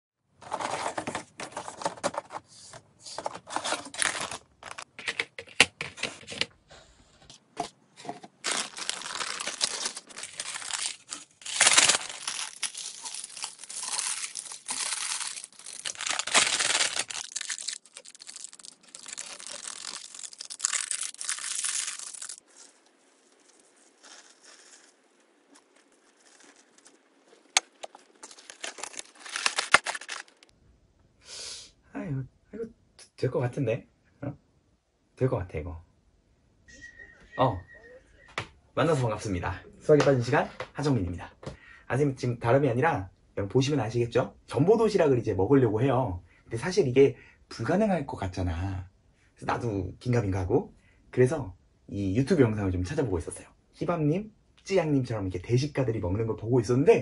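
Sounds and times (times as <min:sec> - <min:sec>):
plastic wrapping crinkling: 0:03.6 - 0:05.0, 0:08.0 - 0:30.5
flakes shaken out: 0:08.5 - 0:25.0.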